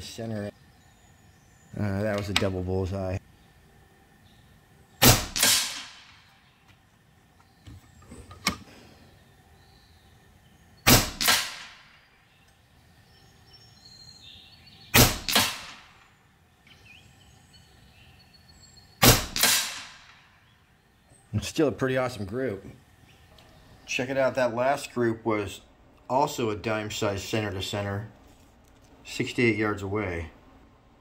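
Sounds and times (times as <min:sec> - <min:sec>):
air rifle shots: 0:05.0 - 0:06.3, 0:10.8 - 0:12.0, 0:14.9 - 0:16.1, 0:19.0 - 0:20.3.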